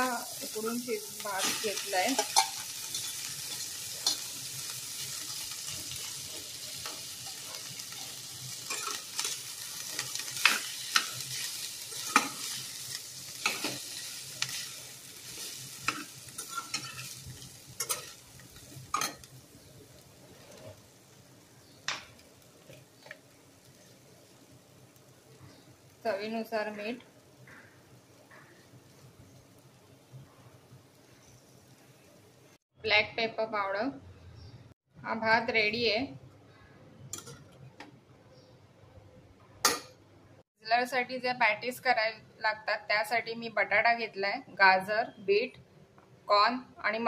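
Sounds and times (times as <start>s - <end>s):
rice sizzling in oil: 0.0s - 32.7s
spatula scraping pan: 13.4s - 19.3s.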